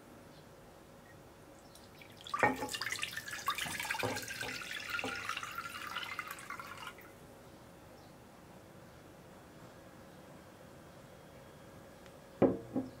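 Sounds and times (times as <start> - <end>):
water pouring into a pot: 1.9 - 7.1.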